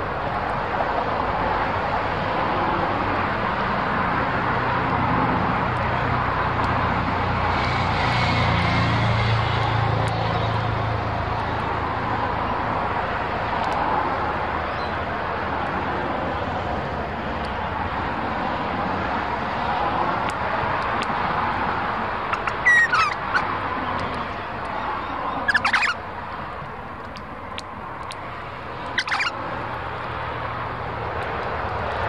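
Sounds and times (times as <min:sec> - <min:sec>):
steady rushing noise: 0:00.0 - 0:32.0
bird calls: 0:22.3 - 0:26.0, 0:28.8 - 0:29.4.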